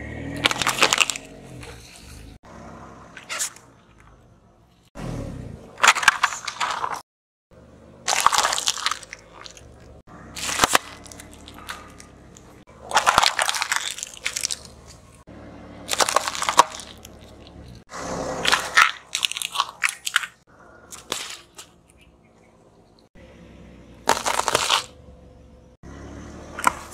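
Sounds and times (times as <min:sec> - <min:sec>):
tyre crushing objects on asphalt: 0:00.3 - 0:02.4, 0:05.7 - 0:07.0, 0:08.0 - 0:15.2, 0:15.8 - 0:20.4, 0:24.0 - 0:25.0, 0:26.5 - 0:26.9.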